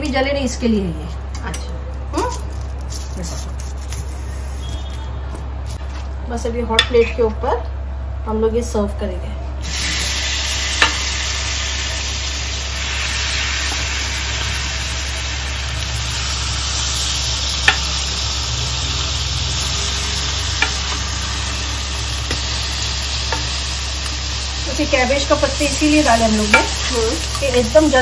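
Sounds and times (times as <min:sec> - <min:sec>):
food sizzling on hot plate: 0:09.6 - 0:28.0.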